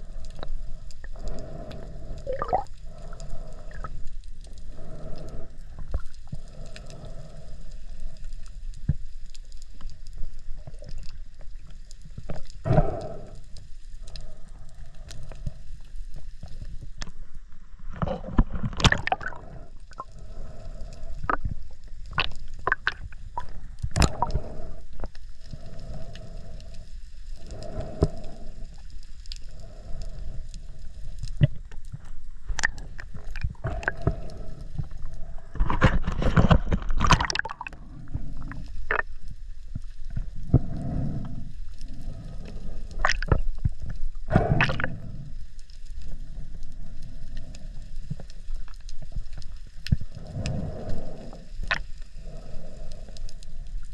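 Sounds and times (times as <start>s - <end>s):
underwater rumble of moving water: 0.0s - 53.9s
sharp clicks and pops: 18.0s - 20.1s, 21.2s - 25.2s, 31.2s - 37.8s, 42.9s - 45.0s.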